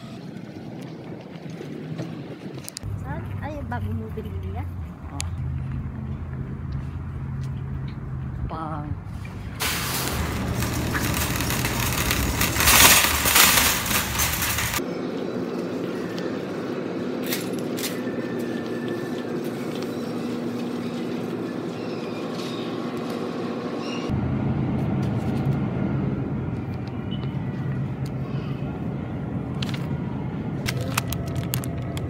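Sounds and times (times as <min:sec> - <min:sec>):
wire shopping cart rattling: 0:09.6 - 0:14.8.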